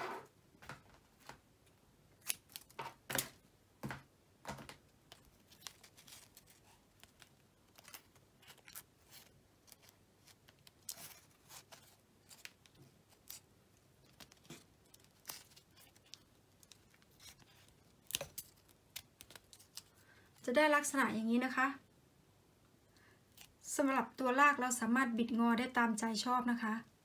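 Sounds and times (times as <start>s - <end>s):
aluminium foil crinkling: 5.1s - 20.4s.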